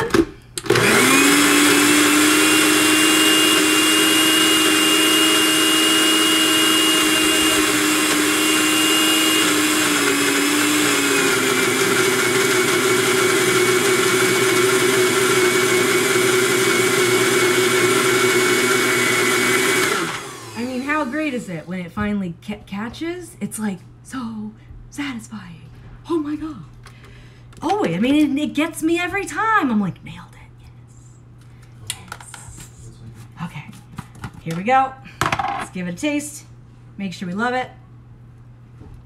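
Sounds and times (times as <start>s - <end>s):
blender running: 0.0s - 21.4s.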